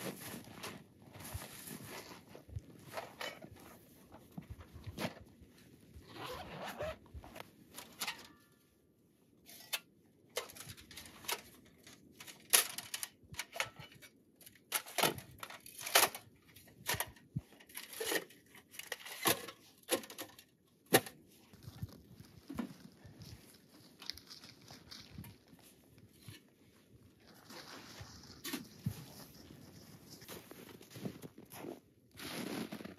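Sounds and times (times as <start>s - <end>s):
camping gear rustling and knocking: 0.0s - 8.3s, 16.6s - 32.9s
zipper opening: 6.0s - 7.4s.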